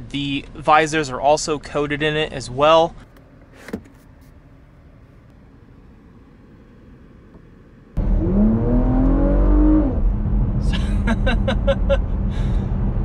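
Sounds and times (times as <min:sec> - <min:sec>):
car engine accelerating hard: 0:08.0 - 0:13.0
person laughing: 0:10.6 - 0:12.6.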